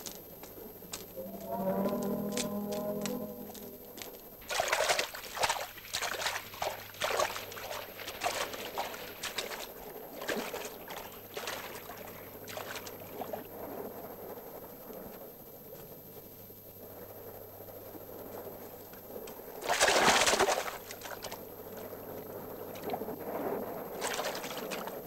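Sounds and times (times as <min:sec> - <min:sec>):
hands splashing sea water: 0:04.4 - 0:13.2, 0:24.0 - 0:25.0.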